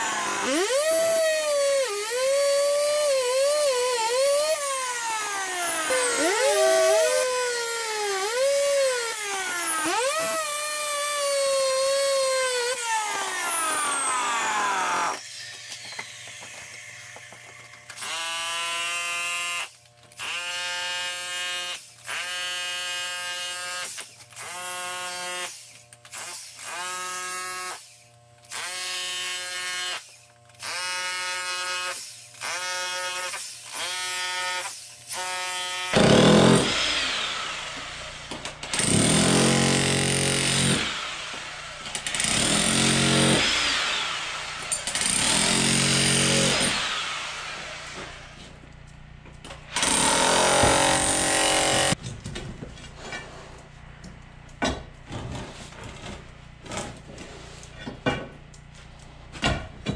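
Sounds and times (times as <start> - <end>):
concrete saw cutting concrete: 0.0 - 16.9, 30.7 - 48.5, 49.8 - 52.0.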